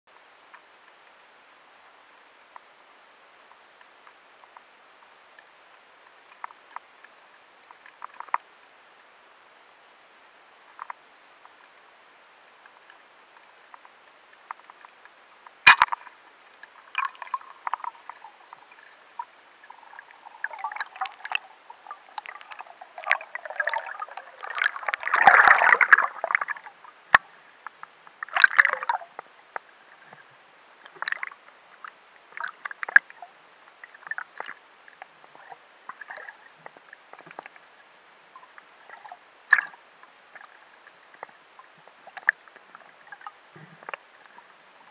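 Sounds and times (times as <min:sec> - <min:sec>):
rush of water: 0:00.1 - 0:44.9
underwater clicks and crackles: 0:03.5 - 0:08.6, 0:10.6 - 0:11.9, 0:12.5 - 0:44.9.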